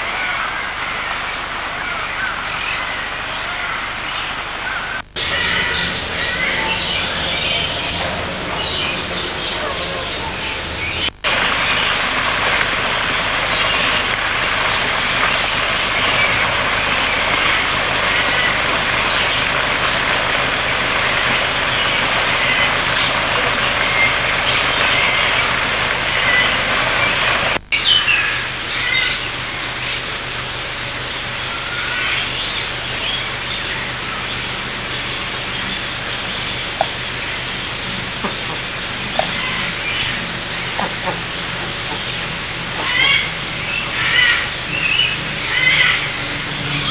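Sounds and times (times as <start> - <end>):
waterfall rushing: 0.0 - 46.9
birds chirping: 2.2 - 46.9.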